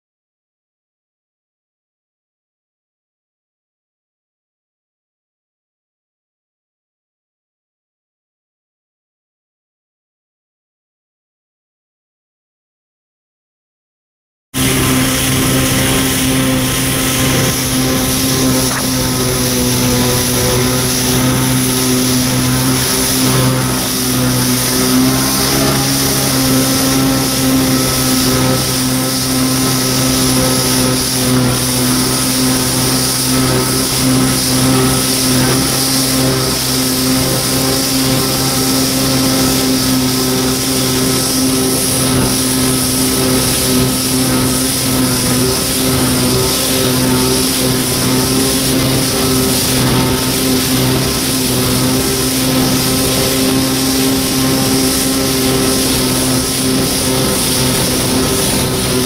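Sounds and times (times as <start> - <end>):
jet ski engine running: 14.6 - 59.0
water rushing along hull: 14.6 - 59.0.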